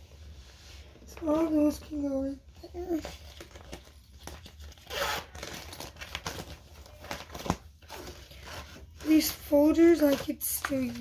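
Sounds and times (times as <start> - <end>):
paper and plastic folders rustling: 1.0 - 11.0.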